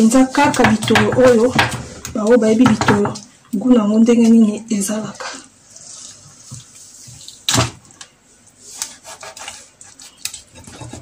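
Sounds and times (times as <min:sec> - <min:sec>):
knife scraping fish: 0:08.6 - 0:11.0.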